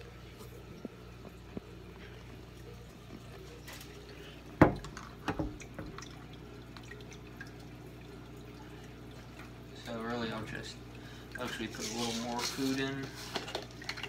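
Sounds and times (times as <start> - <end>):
steady low hum: 0.0 - 11.8
aquarium water trickling: 0.0 - 14.0.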